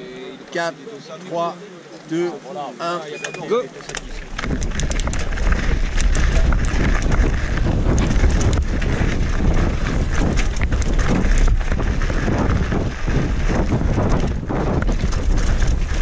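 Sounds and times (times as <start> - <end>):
bike clicking and rattling: 3.1 - 16.0
tyres on loose gravel: 3.3 - 16.0
wind buffeting microphone: 4.1 - 16.0.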